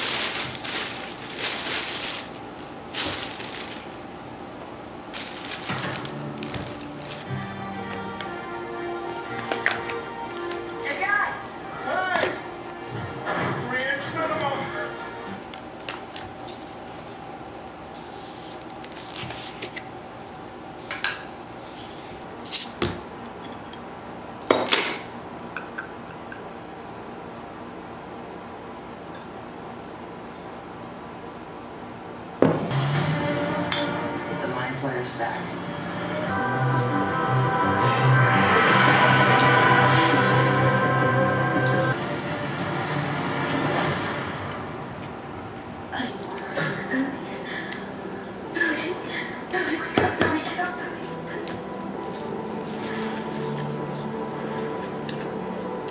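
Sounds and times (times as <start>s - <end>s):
plastic bag rustling: 0.0s - 4.2s, 5.1s - 7.3s.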